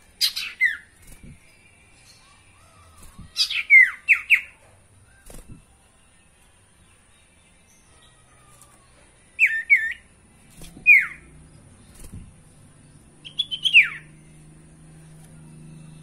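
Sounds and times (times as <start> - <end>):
bird whistling falling notes: 10.6 - 11.2.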